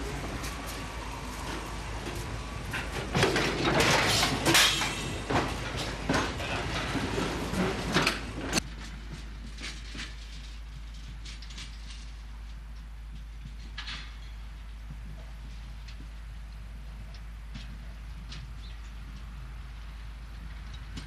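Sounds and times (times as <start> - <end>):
freight wagon clanking on track: 0.0 - 14.8.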